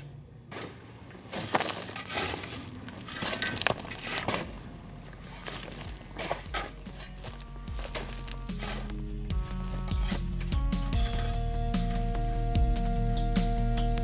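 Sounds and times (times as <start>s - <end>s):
dry soil pouring: 1.2s - 11.4s.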